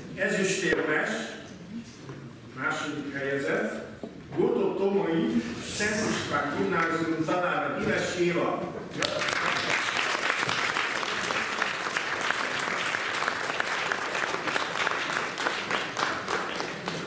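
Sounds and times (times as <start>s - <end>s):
audience applauding: 9.0s - 17.0s.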